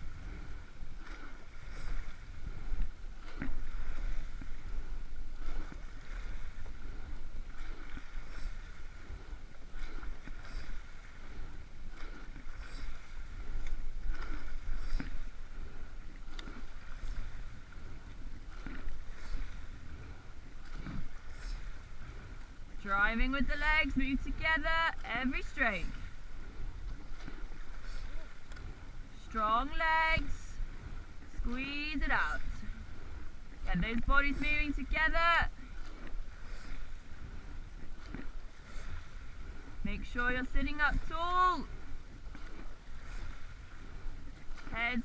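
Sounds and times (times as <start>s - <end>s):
rushing water: 0.0s - 45.0s
wind rumbling on microphone: 0.0s - 45.0s.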